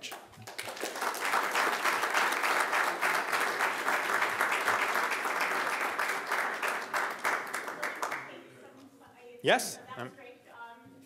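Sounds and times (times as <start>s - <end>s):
audience applauding: 0.0s - 8.4s.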